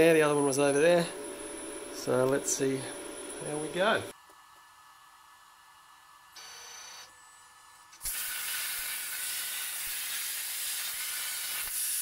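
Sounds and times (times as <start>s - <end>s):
faint high whine: 5.9s - 8.0s
plasma torch hissing: 8.0s - 12.0s.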